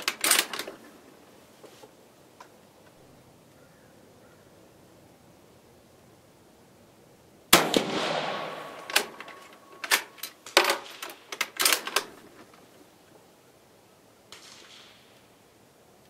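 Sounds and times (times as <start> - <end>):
rifle bolt action clicking: 0.0 - 0.7, 8.6 - 12.1
rifle shot with echo: 7.5 - 9.8, 14.3 - 15.2.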